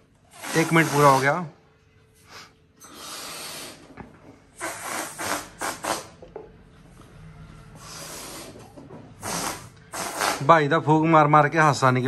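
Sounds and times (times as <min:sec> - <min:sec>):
person blowing through lips: 0:04.5 - 0:06.2, 0:07.8 - 0:10.5.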